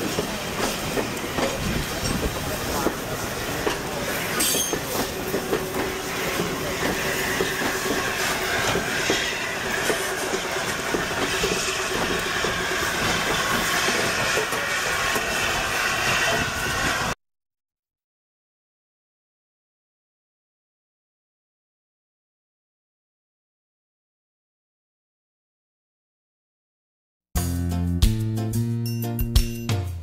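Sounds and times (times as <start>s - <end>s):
train wheels clicking and rumbling: 0.0s - 17.2s.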